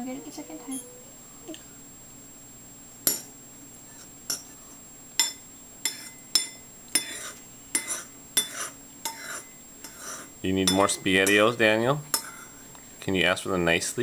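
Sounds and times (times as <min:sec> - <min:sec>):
metal spoon clinking on ceramic bowl: 0:05.2 - 0:09.4, 0:10.6 - 0:11.5, 0:12.1 - 0:12.5.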